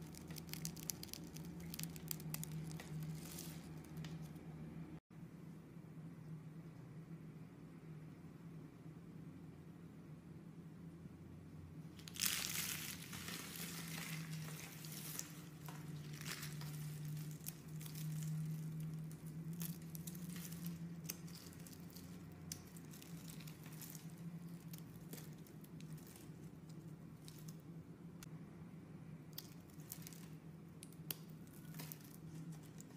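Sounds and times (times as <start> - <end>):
soap curls crackling: 0.0 - 4.5, 11.9 - 27.8, 29.3 - 32.9
faint low hum: 0.0 - 32.9.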